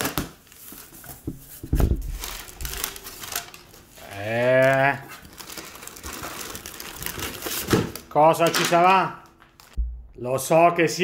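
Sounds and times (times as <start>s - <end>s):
cardboard and paper rustling: 0.0s - 8.9s
low thump: 9.8s - 10.2s.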